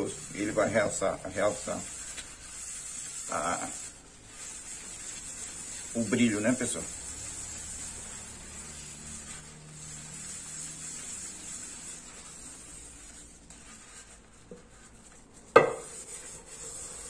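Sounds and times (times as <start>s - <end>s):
sponge scrubbing metal pot: 0.0s - 17.0s.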